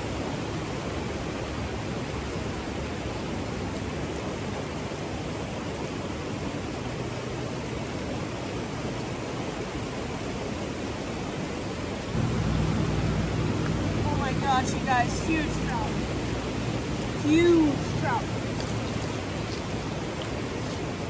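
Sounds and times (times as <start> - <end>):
river rushing over rocks: 0.0 - 21.0
low rumble: 12.1 - 19.5.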